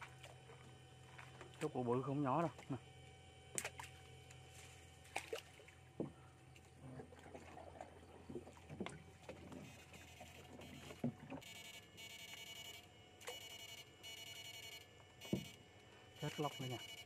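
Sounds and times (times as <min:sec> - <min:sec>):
water sloshing: 0:00.0 - 0:02.9, 0:03.5 - 0:11.4.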